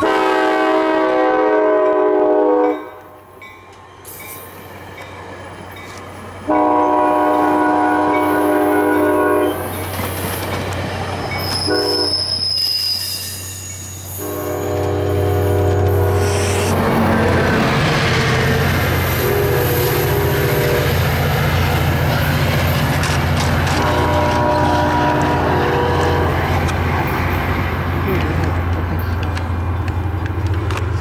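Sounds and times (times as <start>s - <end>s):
train horn blasts: 0.0s - 3.1s, 6.5s - 9.7s, 11.7s - 12.2s, 14.2s - 17.6s, 19.1s - 21.1s, 23.6s - 26.7s
train cars rumbling: 0.0s - 31.0s.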